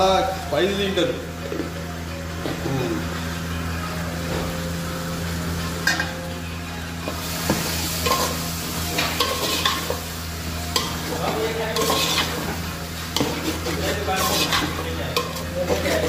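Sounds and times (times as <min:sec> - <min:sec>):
tomatoes sizzling in oil: 0:00.0 - 0:16.0
spatula scraping a metal pot: 0:11.8 - 0:12.6, 0:13.2 - 0:16.0.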